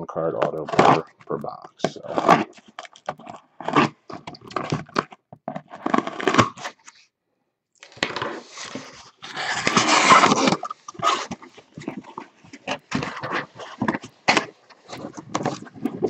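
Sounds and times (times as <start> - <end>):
cardboard and tape tearing: 1.9 - 7.0, 7.8 - 16.0
boxes scraping and rustling: 7.9 - 16.0.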